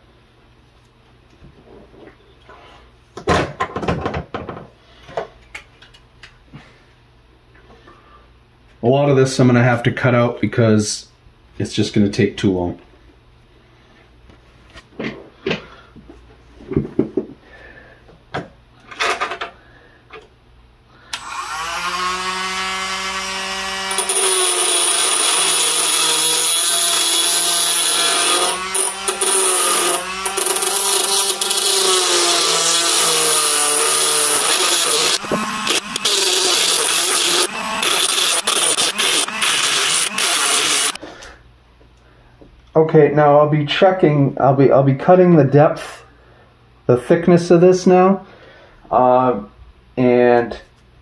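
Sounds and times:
rotary tool whining: 21.1 - 41.0
cutting disc grinding metal: 21.2 - 41.0.

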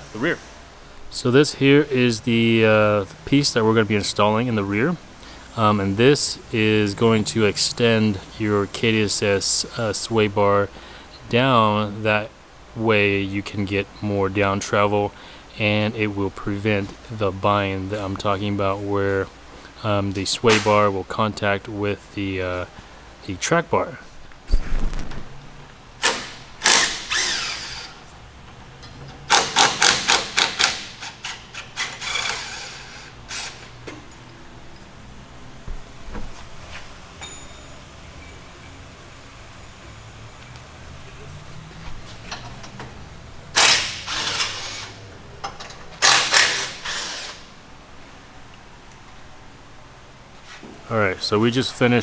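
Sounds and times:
impact wrench hammering: 26.0 - 27.9, 29.3 - 34.0, 43.5 - 47.5.

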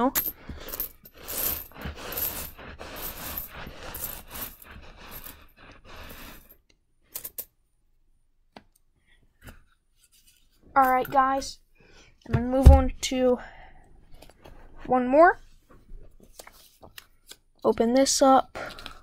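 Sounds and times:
coins clinking and scraping: 0.0 - 7.5.

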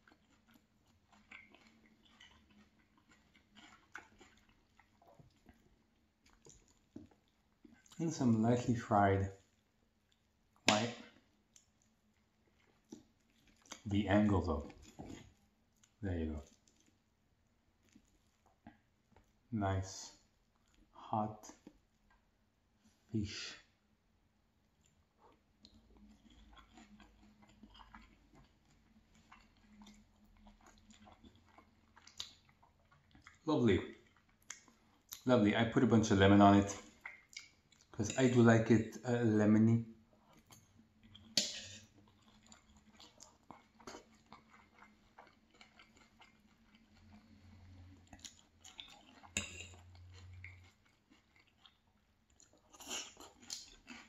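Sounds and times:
close-up chewing: 0.0 - 8.0, 9.4 - 17.1, 24.7 - 35.3, 36.6 - 38.3, 40.1 - 54.0.

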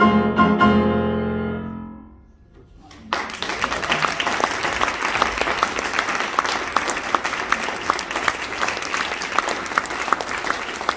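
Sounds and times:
audience applauding: 2.7 - 10.9.

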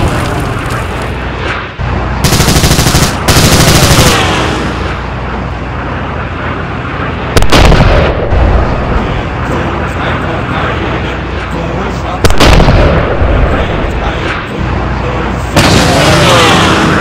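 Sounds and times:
steady rumble: 0.0 - 17.0
machine-gun fire: 2.2 - 4.5, 7.4 - 8.3, 12.2 - 13.6.

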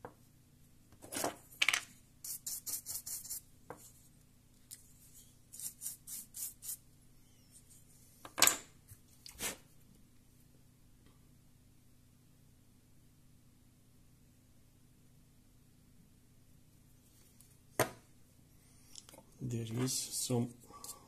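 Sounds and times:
bristle brush scrubbing: 2.2 - 3.4, 5.0 - 6.8.

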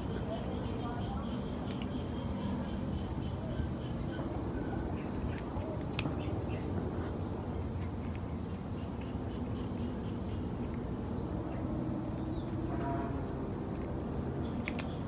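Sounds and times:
cats crunching dry kibble: 1.4 - 2.1, 4.2 - 12.6, 13.2 - 15.0.

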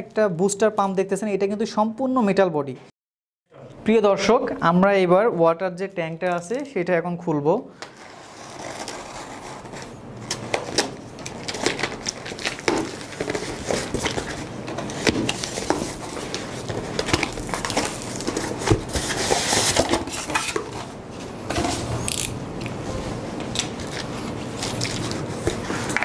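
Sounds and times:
packing sheet rustling: 8.0 - 22.0, 23.6 - 26.0
cutter slitting packing tape: 22.0 - 22.4.

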